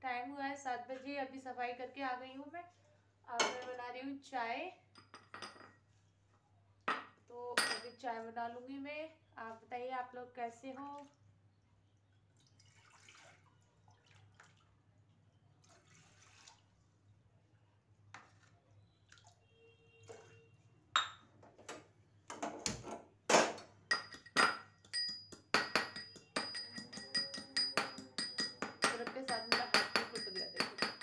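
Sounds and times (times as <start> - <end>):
pounding knocks with metallic ring: 23.9 - 31.0.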